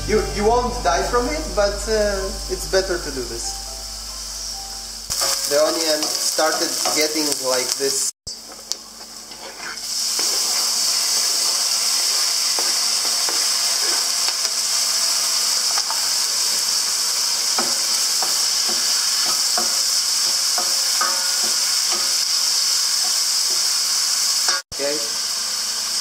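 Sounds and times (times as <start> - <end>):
food sizzling in hot oil: 0.9 - 26.0
wooden spoon scraping a pan: 8.5 - 14.4.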